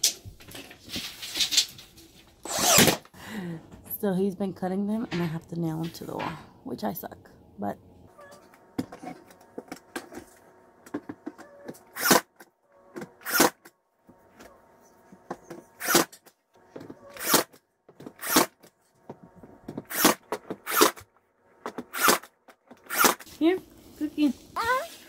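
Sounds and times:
nail gun firing: 2.4 - 3.1, 12.0 - 12.3, 13.2 - 13.6, 15.8 - 16.2, 17.2 - 17.6, 18.2 - 18.6, 19.9 - 21.0, 21.8 - 22.3, 22.9 - 23.2.

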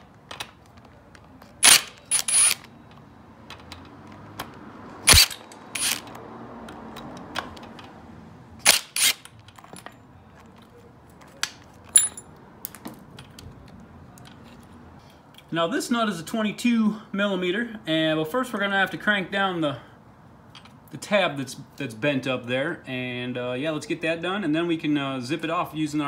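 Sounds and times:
short metallic ring: 11.9 - 12.3.

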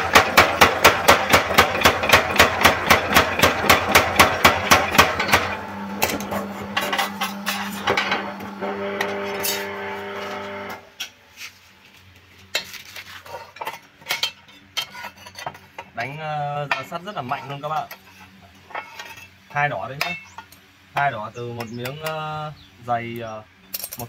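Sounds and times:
power hammer striking: 0.0 - 10.8
motor humming: 0.0 - 10.9
metallic clinks and clanks: 23.7 - 24.0.

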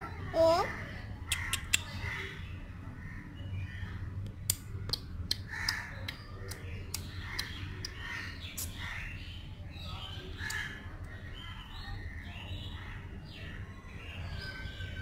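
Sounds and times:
crows cawing: 5.5 - 6.0.

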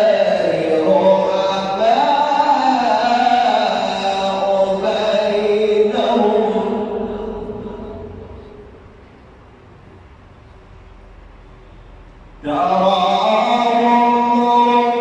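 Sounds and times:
man reciting melodically: 0.0 - 9.0, 12.3 - 15.0.

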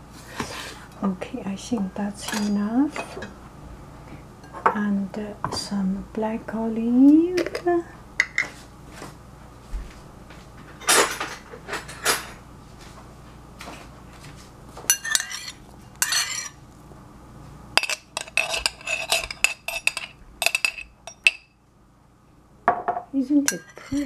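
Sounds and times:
metal spoon clinking on glass jar: 14.9 - 16.5, 17.8 - 21.4, 23.5 - 24.0.

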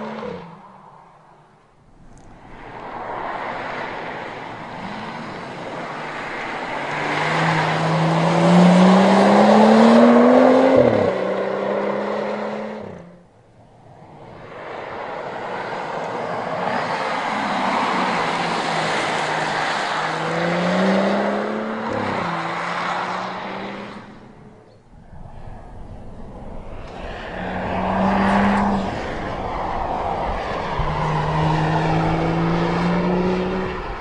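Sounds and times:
tyre and road noise: 0.0 - 34.0
car accelerating past: 2.1 - 13.2, 14.7 - 34.0.

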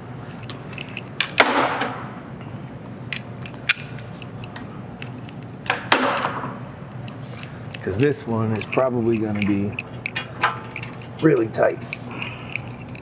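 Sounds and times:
steady low shop hum: 0.0 - 13.0
metal tools clinking: 7.8 - 13.0.

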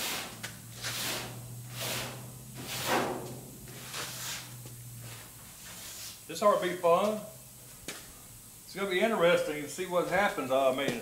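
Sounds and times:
abrasive pad scrubbing metal: 0.0 - 4.6.

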